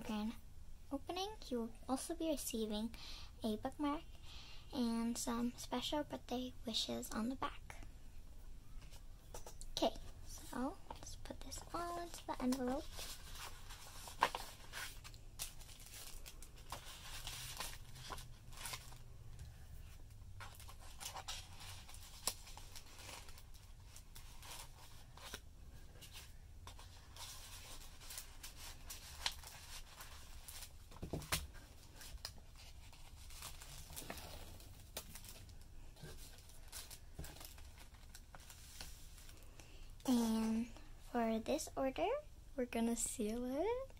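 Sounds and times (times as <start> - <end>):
paper rustling and crinkling: 10.6 - 39.5.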